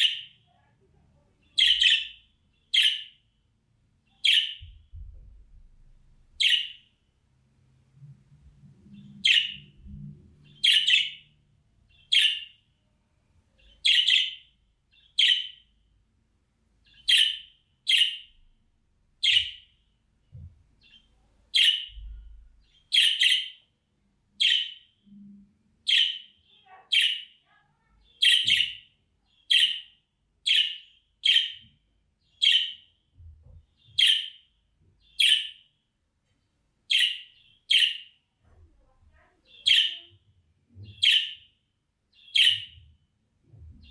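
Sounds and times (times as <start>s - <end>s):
budgerigar chirping: 0.0s - 0.4s, 1.5s - 3.2s, 4.1s - 4.7s, 6.4s - 6.9s, 9.2s - 9.7s, 10.4s - 11.3s, 11.9s - 12.6s, 13.6s - 15.7s, 16.8s - 18.4s, 19.2s - 19.7s, 20.8s - 22.0s, 22.6s - 23.7s, 24.4s - 24.9s, 25.8s - 27.4s, 28.1s - 31.7s, 32.3s - 32.9s, 33.8s - 35.7s, 36.9s - 38.2s, 39.5s - 40.1s, 40.8s - 42.8s.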